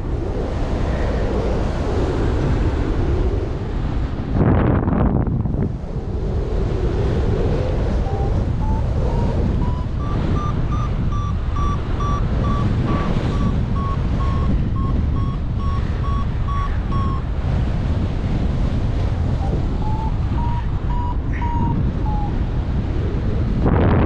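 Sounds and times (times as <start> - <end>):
wind rushing over microphone: 0.0 - 24.0
variometer beeping: 8.0 - 17.8, 19.3 - 22.4.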